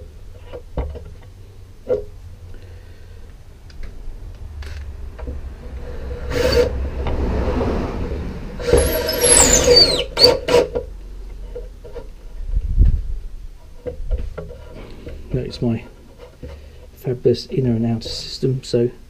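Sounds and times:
cordless drill driving screws: 0:08.6 - 0:10.7.

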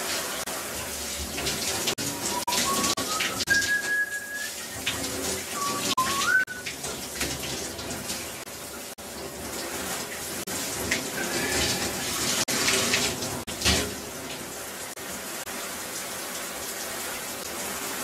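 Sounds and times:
running water: 0:00.0 - 0:18.0
whistle-like tone: 0:02.1 - 0:04.6, 0:05.6 - 0:06.7.

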